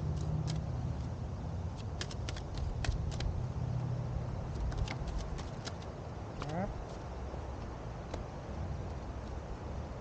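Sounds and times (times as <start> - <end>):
cards being shuffled: 1.7 - 3.4, 4.4 - 7.0.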